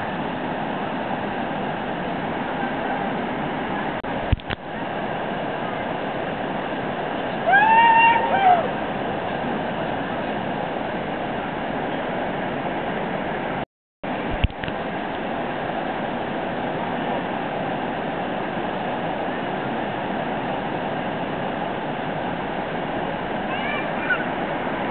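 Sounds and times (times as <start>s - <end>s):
river water rushing over weir: 0.0s - 24.9s.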